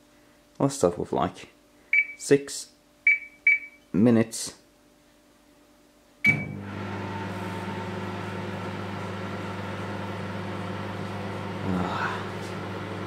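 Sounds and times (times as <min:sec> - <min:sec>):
microwave beep: 0:01.9 - 0:02.3, 0:03.0 - 0:03.9, 0:06.2 - 0:07.3
microwave oven humming: 0:05.6 - 0:13.0
microwave button click: 0:06.3 - 0:06.5.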